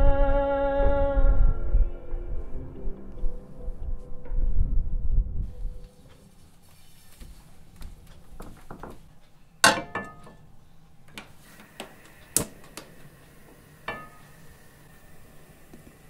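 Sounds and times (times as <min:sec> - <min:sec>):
frying pan clanking on metal grate: 0:09.6 - 0:10.4, 0:13.9 - 0:14.2.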